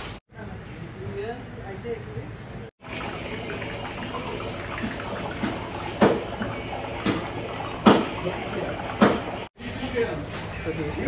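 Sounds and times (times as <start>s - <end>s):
water bubbling in fish tank: 2.8s - 9.6s
sharp knocks: 8.9s - 9.4s.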